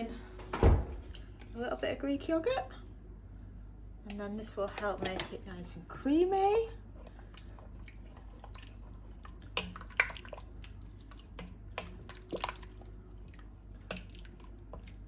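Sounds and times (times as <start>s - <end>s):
spoon stirring thick soup: 6.8s - 15.0s.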